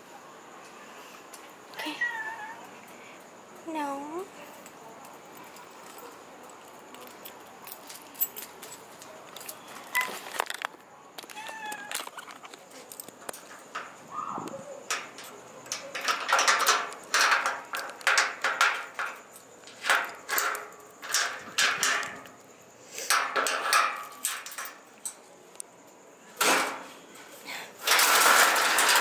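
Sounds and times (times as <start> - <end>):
cat meowing: 1.8 - 2.6, 11.4 - 12.0
metal door grille rattling: 11.9 - 14.1, 14.8 - 25.2, 26.4 - 27.0, 27.8 - 29.0.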